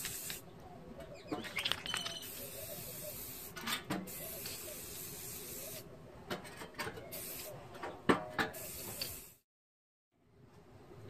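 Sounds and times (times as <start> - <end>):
spray paint can hissing: 0.0 - 0.4, 1.9 - 5.8, 7.1 - 7.5, 8.5 - 9.4.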